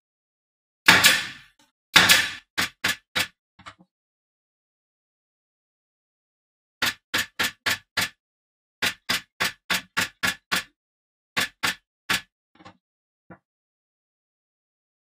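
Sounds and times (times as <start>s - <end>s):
sharp knocks: 0.9s - 1.4s, 2.0s - 3.3s.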